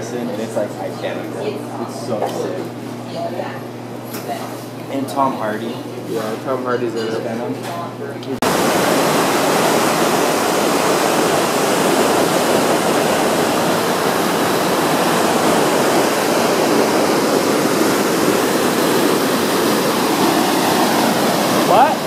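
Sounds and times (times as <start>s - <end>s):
water rushing over rocks: 8.4s - 22.0s.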